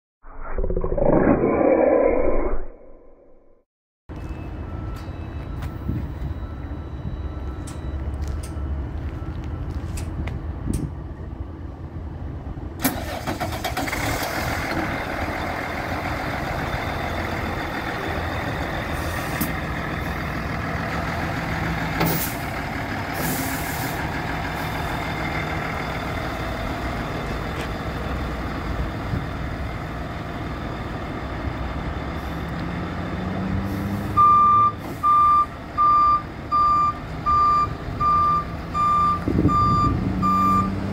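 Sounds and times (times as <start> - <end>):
reversing beeper: 4.2 - 9.9, 34.2 - 40.8
diesel truck engine running: 4.6 - 40.9.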